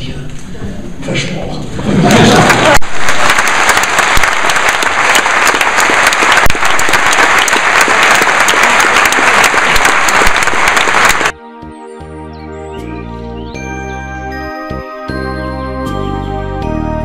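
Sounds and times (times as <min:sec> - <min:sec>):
audience applauding: 0:02.0 - 0:11.4.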